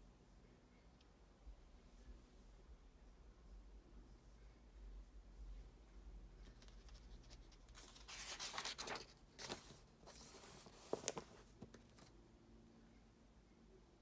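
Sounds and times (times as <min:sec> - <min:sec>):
paper pages rustling: 0:06.4 - 0:12.1.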